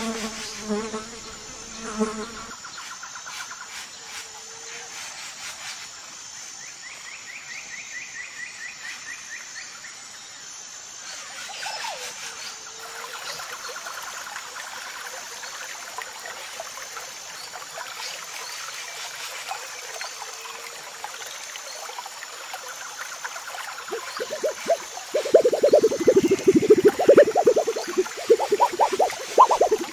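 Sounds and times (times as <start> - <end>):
birds trilling and chirping: 23.9 - 29.9
high repeating chirp: 23.9 - 29.9.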